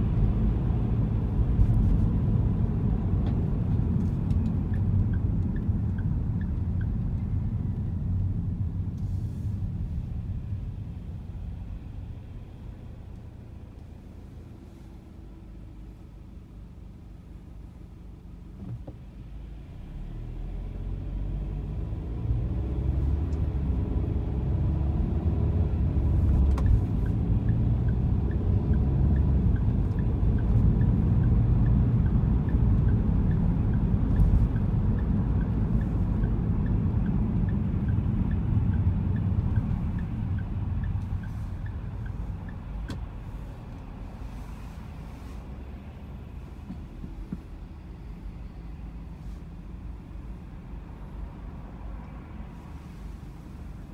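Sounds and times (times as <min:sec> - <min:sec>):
car engine and road rumble: 0:00.0 - 0:53.9.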